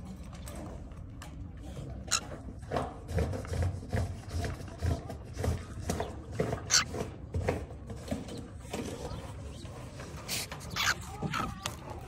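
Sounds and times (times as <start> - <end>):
cockatiel harsh calls: 6.7 - 7.0, 10.3 - 11.6.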